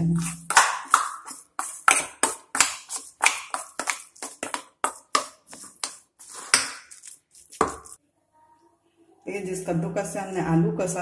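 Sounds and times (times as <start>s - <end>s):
metal spoon stirring in bowl: 0.0s - 8.0s.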